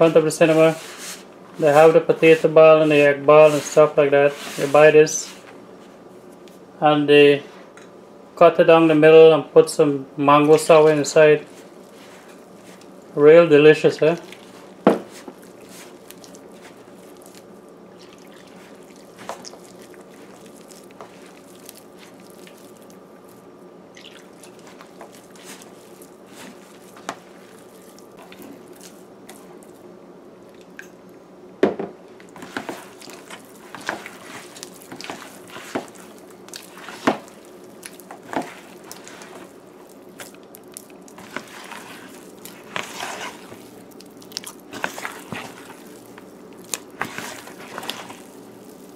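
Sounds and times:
steady background hum: 0:00.0 - 0:48.9
hand squelching through wet batter: 0:10.5 - 0:13.2, 0:13.9 - 0:29.9, 0:32.3 - 0:48.9.

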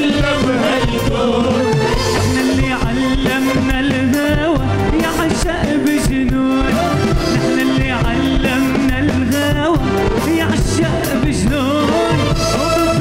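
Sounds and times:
band playing with drum beat: 0:00.0 - 0:13.0
man singing pop song: 0:00.0 - 0:13.0.

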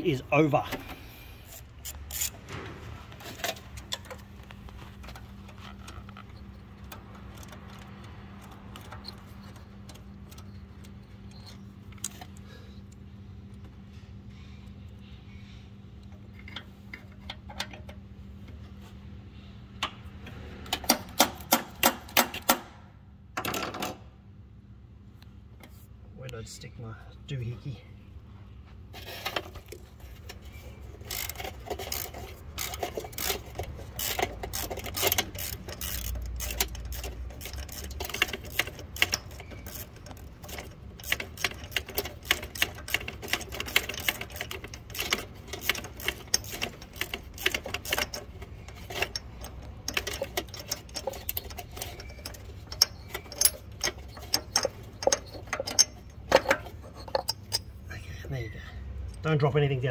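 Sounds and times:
ratchet clicking: 0:01.5 - 0:02.4, 0:29.2 - 0:57.7.

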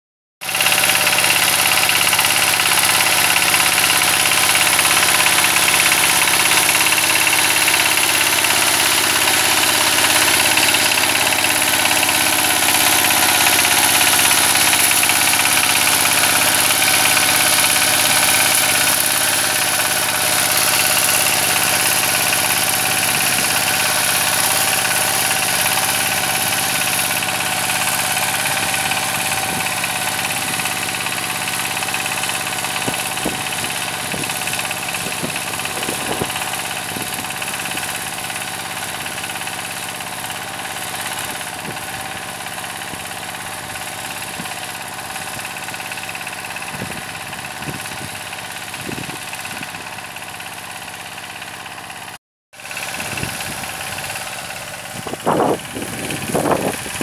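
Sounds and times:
diesel tractor engine running: 0:00.4 - 0:57.0.

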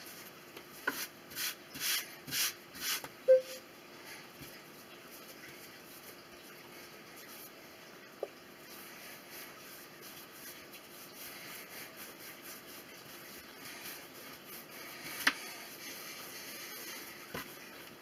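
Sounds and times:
hands rubbing dough: 0:08.6 - 0:18.0.

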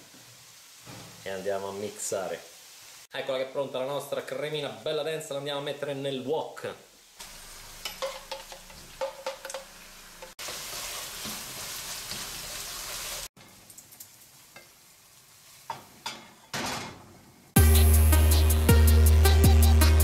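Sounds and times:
food sizzling in a wok: 0:00.0 - 0:03.4, 0:06.9 - 0:16.5.

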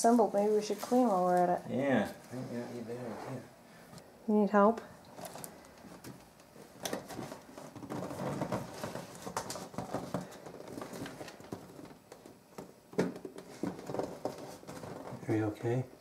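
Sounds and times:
plastic bin and cardboard scraping: 0:06.8 - 0:12.3, 0:13.0 - 0:15.6.

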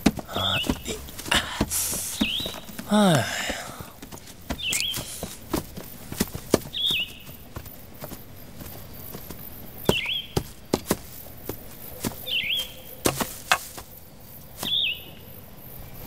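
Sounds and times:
footsteps on dry leaves and twigs: 0:00.0 - 0:15.2
bird chirp: 0:00.0 - 0:16.0.

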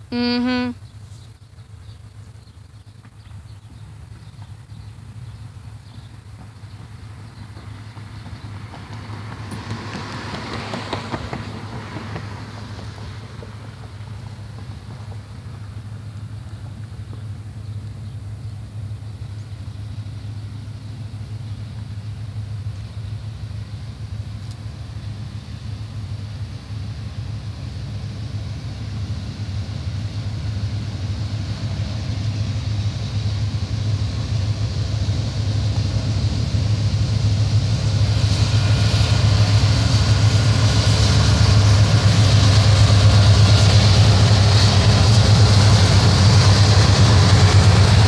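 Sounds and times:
diesel locomotive rumble: 0:00.0 - 0:48.0
train hiss: 0:03.3 - 0:48.0
train wheel clicks: 0:06.3 - 0:13.7.

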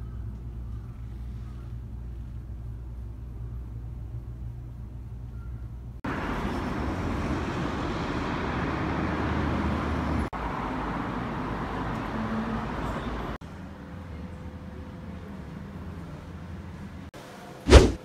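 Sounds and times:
low room hum: 0:00.0 - 0:06.0
road traffic rushing: 0:06.0 - 0:17.1.

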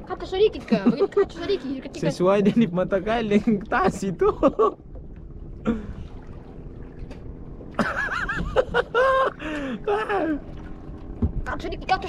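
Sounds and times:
boy laughing and giggling: 0:00.4 - 0:02.7, 0:03.9 - 0:04.8, 0:07.8 - 0:10.4.

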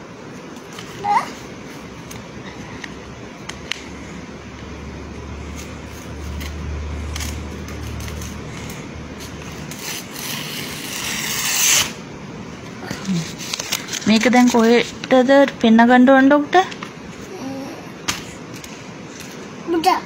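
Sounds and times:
paper rustling: 0:12.8 - 0:15.7.

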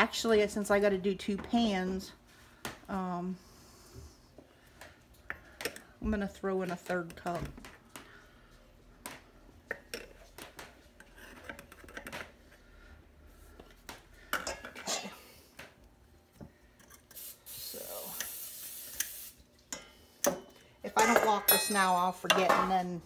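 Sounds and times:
metal scoop clinking on glass: 0:21.0 - 0:22.1.

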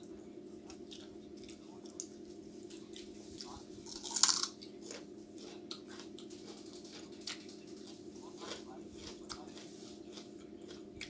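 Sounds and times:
person chewing food: 0:00.6 - 0:11.0
food crunch: 0:02.7 - 0:11.0.

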